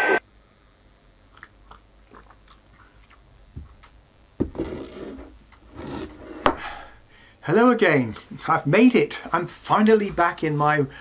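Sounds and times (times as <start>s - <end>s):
person sipping tea: 1.3s - 3.2s
swallowing sounds: 1.3s - 3.3s.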